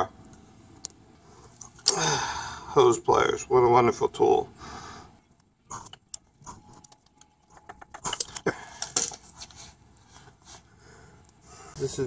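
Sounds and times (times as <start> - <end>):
metal tools clinking on concrete: 8.0 - 9.3.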